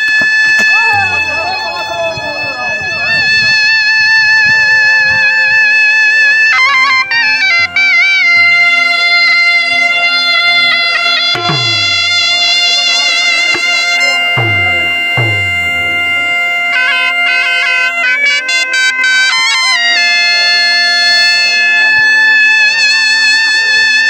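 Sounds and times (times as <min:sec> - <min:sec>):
bagpipes with drone: 0:00.0 - 0:24.0
shehnai playing folk melody: 0:00.0 - 0:24.0
deep drum strikes: 0:11.4 - 0:12.8, 0:13.6 - 0:16.2.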